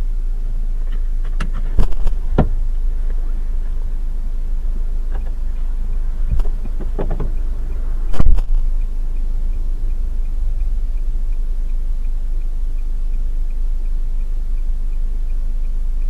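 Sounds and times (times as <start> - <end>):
car engine idling: 0.0 - 16.0
car door shutting: 0.9 - 3.2, 6.2 - 8.5.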